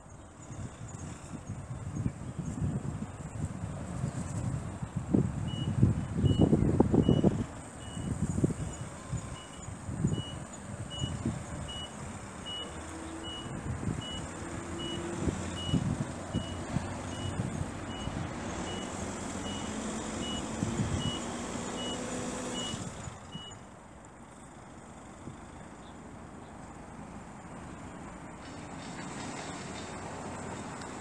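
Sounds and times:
engine humming: 0.0s - 31.0s
reversing alarm beeps: 5.5s - 23.6s.

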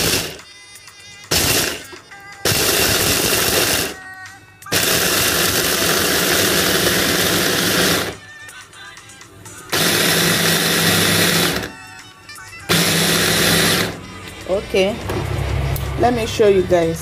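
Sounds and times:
food processor chopping nuts: 0.0s - 0.4s, 4.7s - 8.2s, 9.7s - 11.8s, 12.7s - 14.0s.

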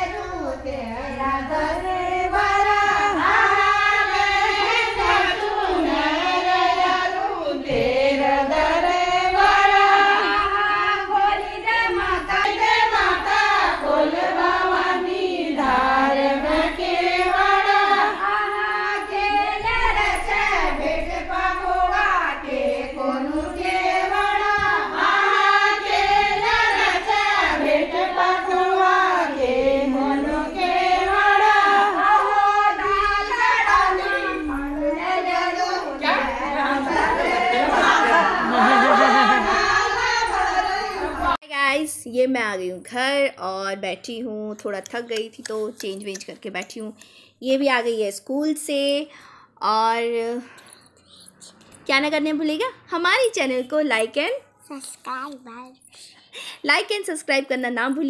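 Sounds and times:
child singing unaccompanied: 54.7s - 56.0s.

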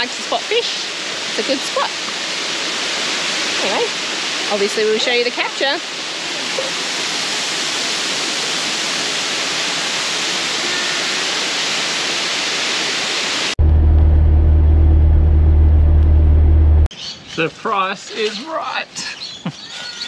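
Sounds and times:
waterfall rushing into pool: 0.0s - 13.6s
truck driving on highway: 13.6s - 16.9s.

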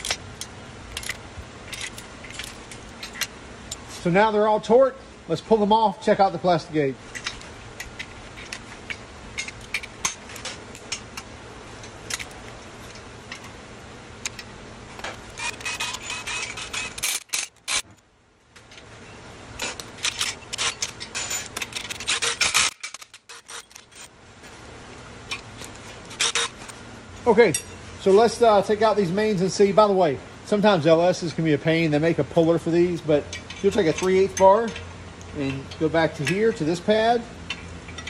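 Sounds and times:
hand ratchet clicking: 15.0s - 17.8s, 19.6s - 24.1s, 25.3s - 26.7s.

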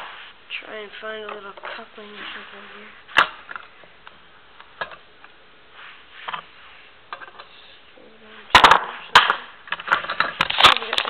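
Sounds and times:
hard objects clattering: 8.5s - 11.0s.

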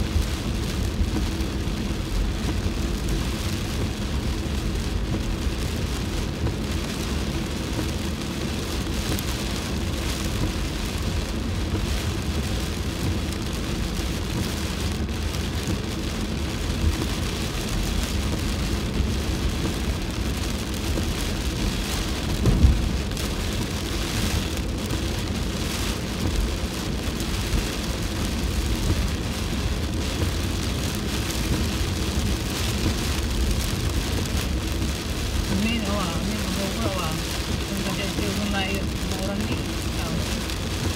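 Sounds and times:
heavy rain on a car: 0.0s - 40.9s
tyres rumbling on wet road: 0.0s - 40.9s
windscreen wipers sweeping: 0.0s - 40.9s
low thump: 22.4s - 23.0s.

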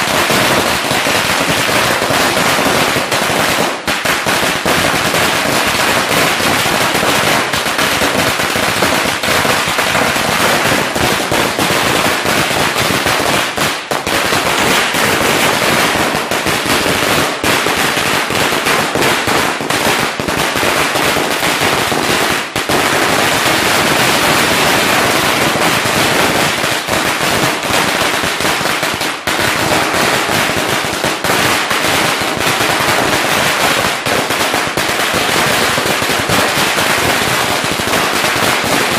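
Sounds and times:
firecrackers bursting: 0.0s - 38.9s.

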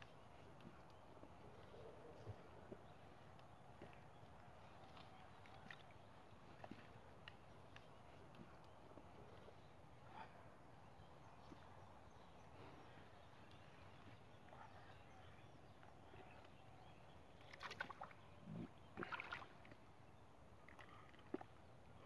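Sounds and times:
mud and water splashes: 17.5s - 19.8s.

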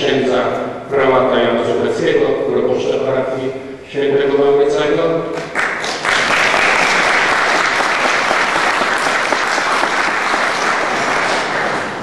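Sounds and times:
audience applauding: 5.4s - 12.0s.

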